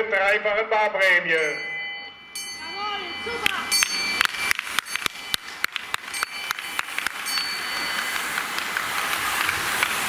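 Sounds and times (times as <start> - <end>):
hand bell ringing rapidly: 1.4 - 8.4
rushing noise of passing cyclists: 2.4 - 10.0.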